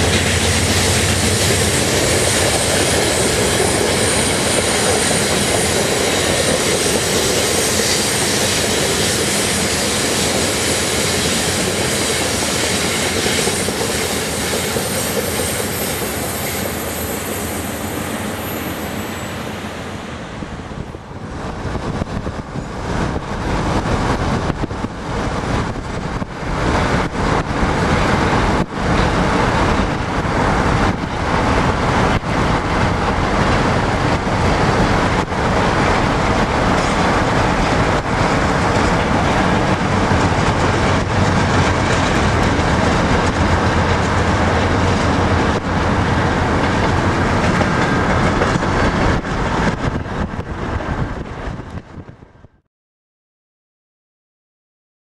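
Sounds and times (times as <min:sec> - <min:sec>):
train wheels clattering on rails: 0:00.0 - 0:52.1
car road and wind noise: 0:20.0 - 0:52.6.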